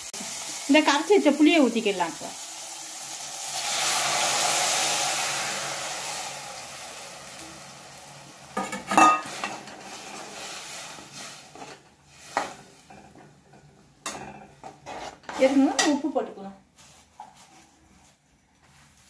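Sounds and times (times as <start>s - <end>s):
liquid sizzling in hot pan: 0.0s - 16.1s.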